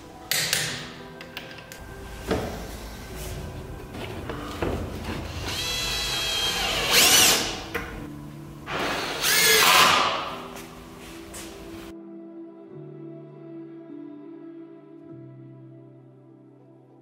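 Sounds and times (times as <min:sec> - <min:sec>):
cordless drill driving screws: 0:05.3 - 0:07.7.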